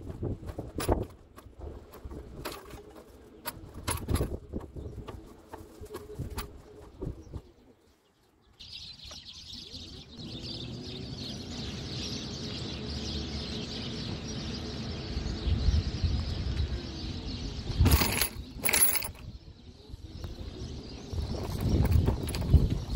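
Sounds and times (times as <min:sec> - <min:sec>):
birds chirping: 0:00.0 - 0:22.9
clicks and rattles: 0:00.5 - 0:04.8, 0:17.8 - 0:19.3, 0:21.4 - 0:22.9
mobility scooter hum: 0:09.6 - 0:17.3.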